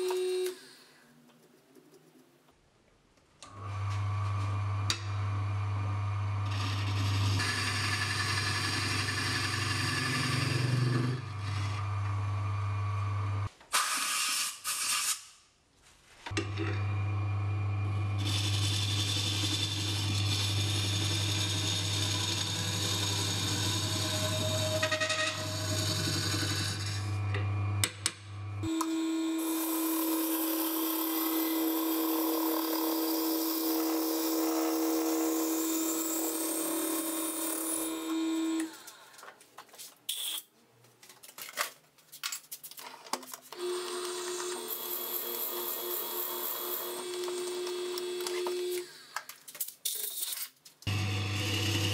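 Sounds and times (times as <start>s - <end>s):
wood lathe running: 5.0s - 13.4s, 18.1s - 28.0s, 28.6s - 38.7s, 43.6s - 48.8s, 50.9s - 51.9s
turning tool cutting wood: 6.3s - 13.5s, 18.2s - 28.0s, 28.6s - 38.8s, 43.6s - 48.9s, 50.9s - 51.9s.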